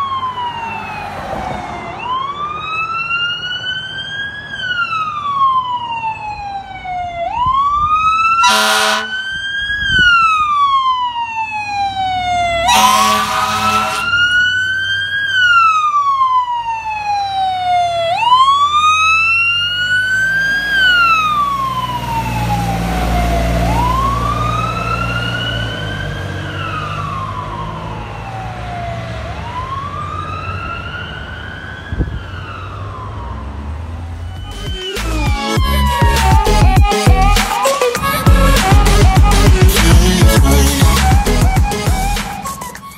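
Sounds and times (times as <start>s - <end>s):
siren wailing: 0.0s - 42.9s
truck horn blast: 8.4s - 9.3s, 12.6s - 14.3s, 35.7s - 42.9s
diesel truck engine rumbling: 11.9s - 15.1s, 32.5s - 42.9s.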